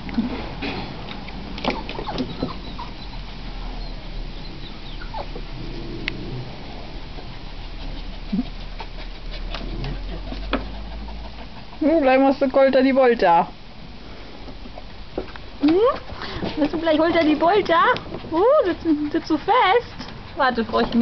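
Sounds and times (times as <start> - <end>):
puppies whimpering and yipping: 1.6 - 5.5, 17.4 - 21.0.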